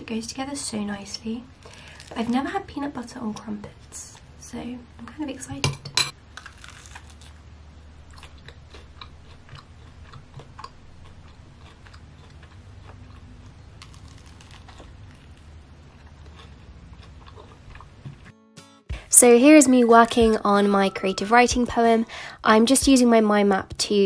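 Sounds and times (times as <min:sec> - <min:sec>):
low room hum: 0:00.0 - 0:18.3, 0:19.0 - 0:24.0
soft chewing crunches: 0:01.6 - 0:02.4, 0:06.4 - 0:07.4, 0:08.0 - 0:18.3.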